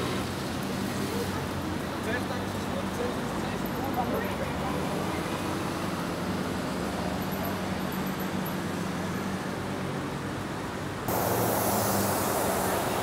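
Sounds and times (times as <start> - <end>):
city traffic hum: 0.0 - 13.0
loud rushing noise: 11.1 - 13.0.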